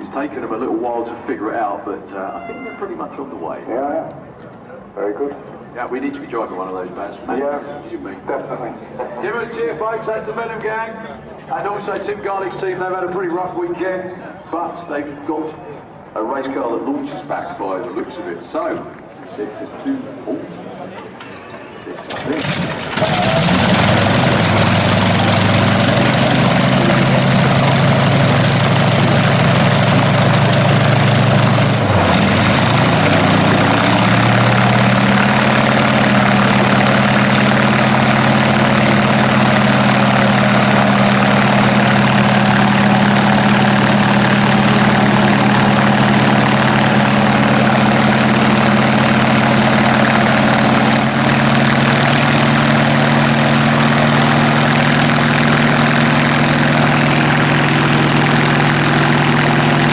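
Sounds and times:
propeller aircraft engine droning: 0:21.9 - 0:59.9.

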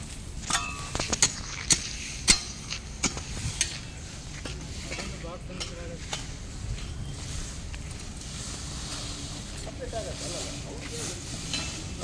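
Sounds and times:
hoe striking hard ground: 0:00.4 - 0:06.4.

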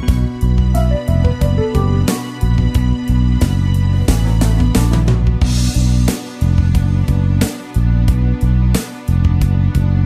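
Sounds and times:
guitar song: 0:00.8 - 0:02.8.

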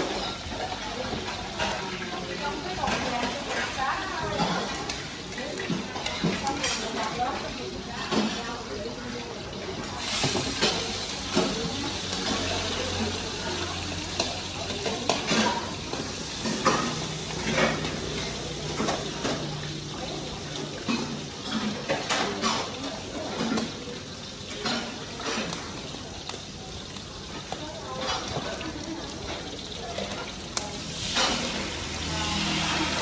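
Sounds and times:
frying sizzle: 0:00.0 - 0:33.0
metal utensil scraping a wok: 0:10.0 - 0:19.9, 0:30.8 - 0:33.0.

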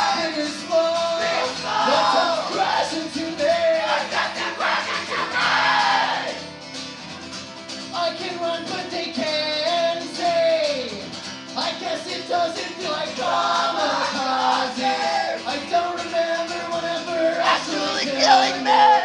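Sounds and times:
man singing into a microphone: 0:00.0 - 0:05.1, 0:07.9 - 0:11.0, 0:11.6 - 0:19.0
acoustic guitar: 0:00.0 - 0:19.0.

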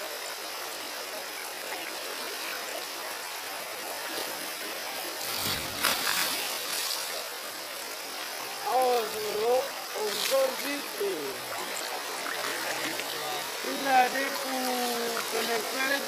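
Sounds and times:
river water rushing: 0:00.0 - 0:16.0
water thrown splash: 0:05.2 - 0:07.2.

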